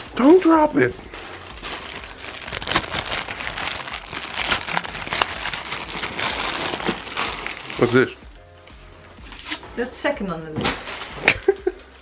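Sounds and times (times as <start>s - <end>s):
plastic bag crinkling: 1.0s - 8.2s, 10.6s - 11.5s.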